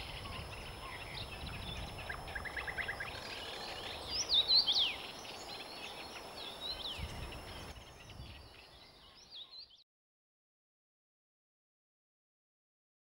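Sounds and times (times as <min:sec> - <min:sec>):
birds twittering faintly: 0:00.0 - 0:09.8.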